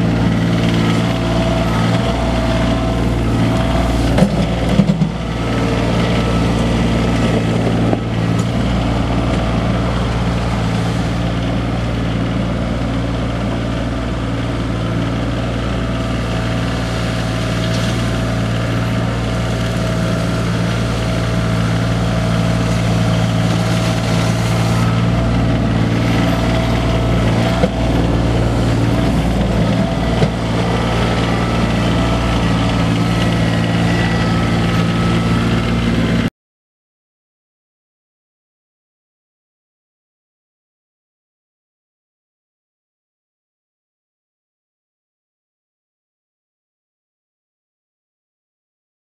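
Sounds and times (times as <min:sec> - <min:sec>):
tractor diesel engine running: 0:00.0 - 0:36.3.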